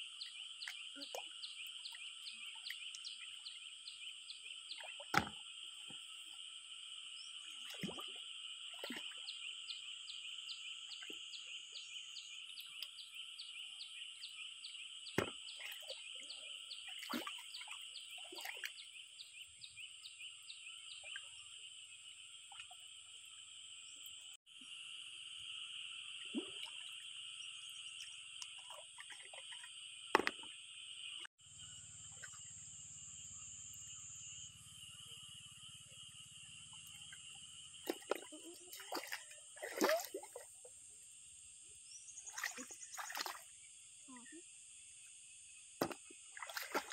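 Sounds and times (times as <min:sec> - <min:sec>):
insects and frogs calling: 0:00.0 - 0:46.9
water splashes: 0:07.5 - 0:09.3, 0:15.2 - 0:18.8, 0:26.2 - 0:27.1, 0:28.0 - 0:30.5, 0:37.0 - 0:40.7, 0:42.2 - 0:43.5, 0:45.8 - 0:46.9.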